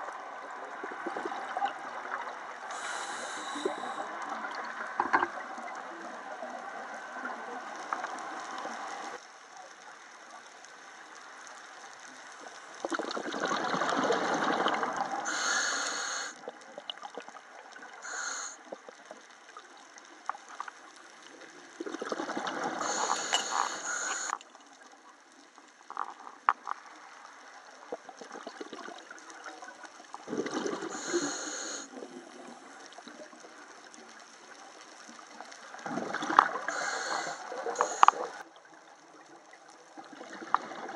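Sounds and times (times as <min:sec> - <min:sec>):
exhaled bubbles underwater: 0:00.0 - 0:09.2, 0:12.8 - 0:19.2, 0:21.3 - 0:24.4, 0:27.9 - 0:40.9
regulator hissing: 0:15.3 - 0:16.3, 0:18.1 - 0:18.6, 0:22.8 - 0:24.4, 0:36.7 - 0:38.4.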